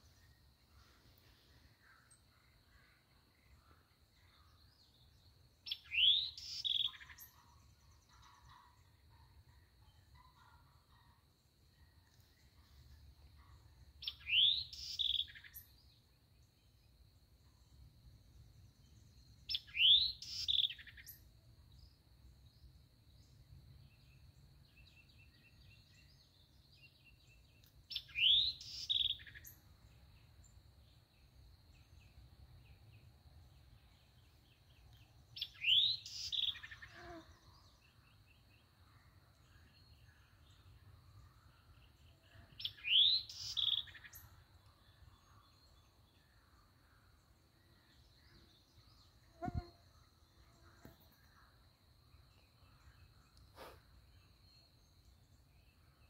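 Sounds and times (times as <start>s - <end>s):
songbird singing: 0.0s - 56.0s.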